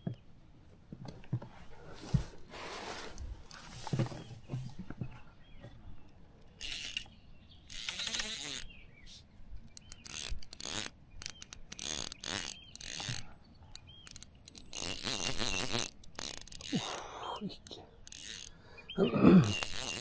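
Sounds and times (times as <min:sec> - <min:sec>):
fishing reel drag ratcheting: 0:06.5 - 0:07.1, 0:07.7 - 0:08.7, 0:09.8 - 0:18.6, 0:19.4 - 0:20.0.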